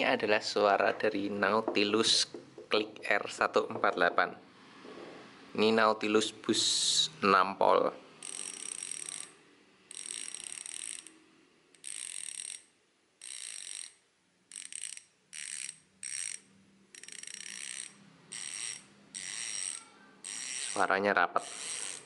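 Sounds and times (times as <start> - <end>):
bicycle freehub clicking: 8.2 - 9.3, 9.9 - 22.0.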